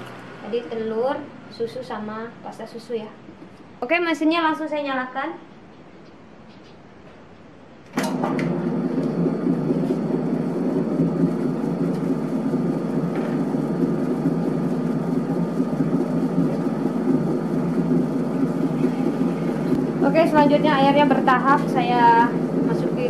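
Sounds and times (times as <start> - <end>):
dough mixer motor running: 8.0 - 23.0.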